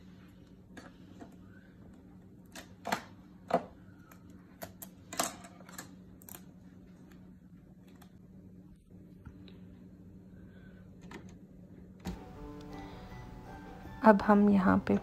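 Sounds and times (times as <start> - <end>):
steady low hum: 5.8 - 15.0.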